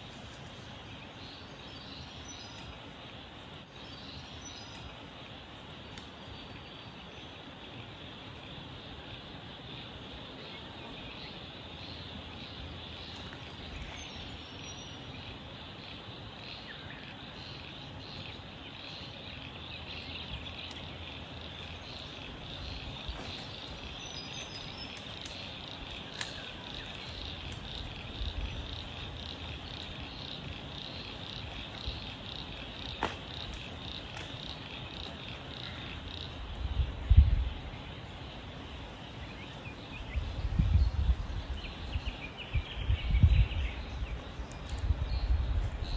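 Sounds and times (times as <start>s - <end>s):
high-pitched insect chorus: 0.0s - 45.9s
faint sharp clicks: 23.1s - 28.0s.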